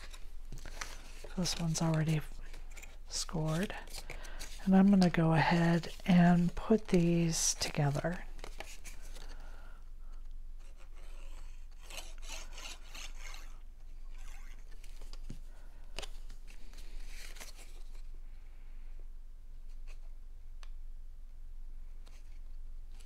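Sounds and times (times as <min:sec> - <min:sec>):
cardstock rustling and scraping: 0:00.0 - 0:09.5, 0:10.6 - 0:18.1.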